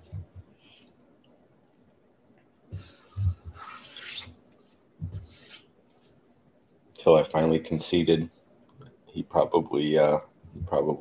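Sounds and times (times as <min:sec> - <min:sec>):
rubbing and rustling handling noise: 0:02.7 - 0:06.9.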